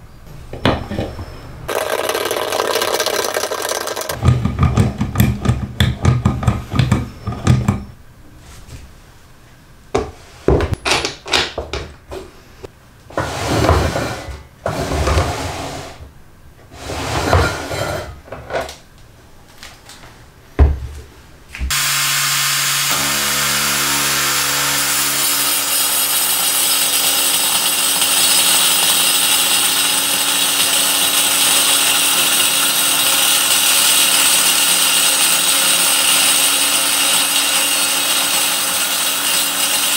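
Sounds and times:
table saw cutting wood: 0:21.7 - 0:39.9.

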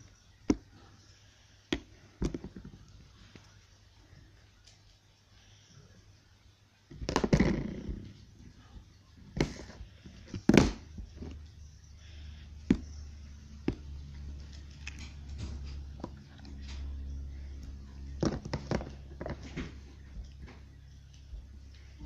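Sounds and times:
plastic scraping: 0:18.2 - 0:20.5.

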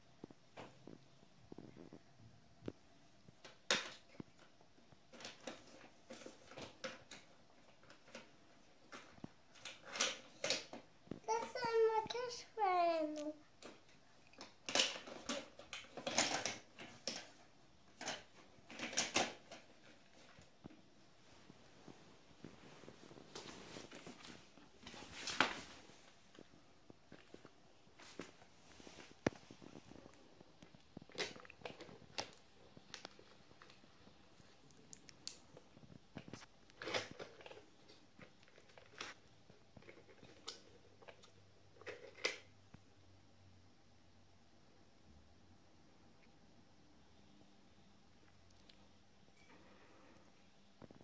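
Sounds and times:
plastic toy pieces clattering: 0:14.4 - 0:17.3.

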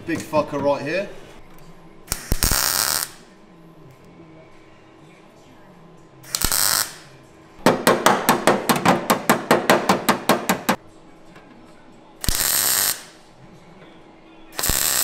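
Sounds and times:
welder crackling: 0:02.1 - 0:03.3, 0:06.3 - 0:07.1, 0:12.2 - 0:13.2, 0:14.6 - 0:15.0.

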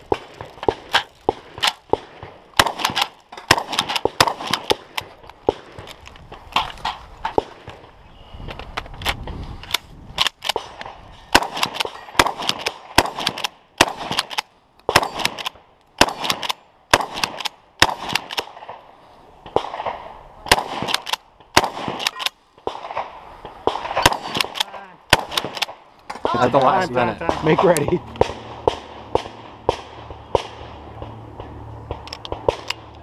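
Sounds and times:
pump shotgun firing: 0:00.1 - 0:05.9, 0:10.4 - 0:18.7, 0:19.6 - 0:23.1, 0:23.7 - 0:25.8.

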